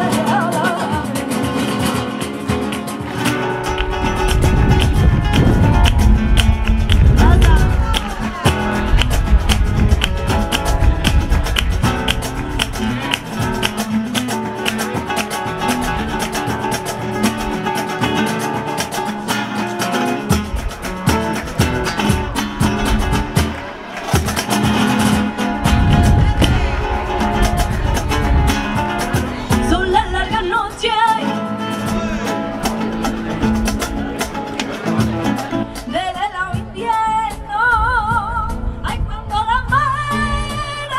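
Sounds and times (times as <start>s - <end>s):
woman singing: 0.0s - 2.3s, 7.0s - 9.3s, 25.8s - 31.7s, 35.7s - 40.9s
flamenco guitars: 0.0s - 40.9s
hand claps: 2.2s - 19.0s, 19.8s - 29.4s.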